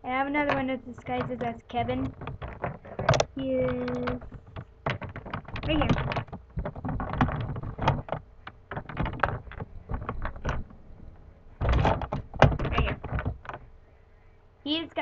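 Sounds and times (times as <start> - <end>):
hands rummaging through plastic toys: 0.4 - 10.8.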